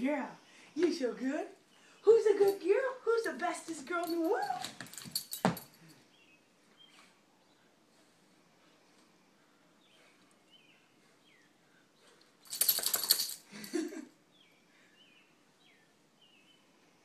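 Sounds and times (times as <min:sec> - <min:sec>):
collar tags jingling: 0:02.1 - 0:06.3, 0:12.0 - 0:14.1
dog shaking its head: 0:12.5 - 0:13.4.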